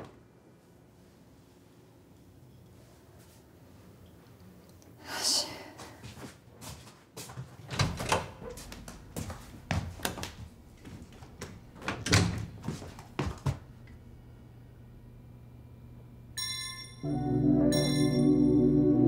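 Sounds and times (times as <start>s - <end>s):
door knocks and clatters: 11.8s - 12.6s
low steady hum: 13.6s - 19.0s.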